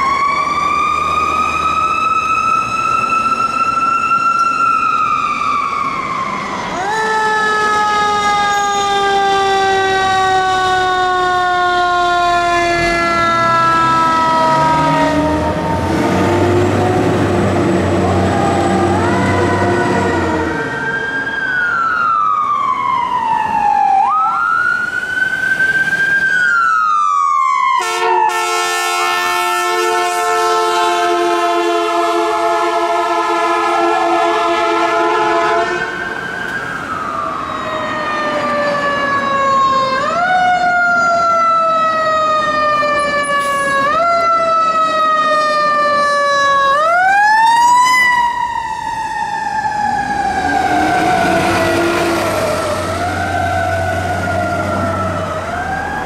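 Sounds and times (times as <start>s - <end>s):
fire truck siren wailing: 0.0s - 56.0s
air horns: 27.8s - 36.0s.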